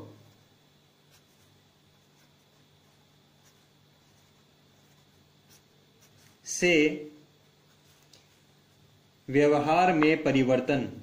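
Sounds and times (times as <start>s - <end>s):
quiet room hum: 0.0s - 11.0s
pen scratching on paper: 1.0s - 6.4s.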